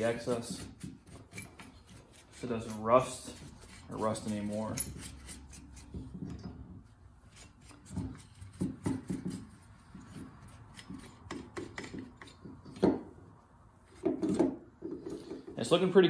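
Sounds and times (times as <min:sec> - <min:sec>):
rag wiping metal: 0:00.0 - 0:06.1.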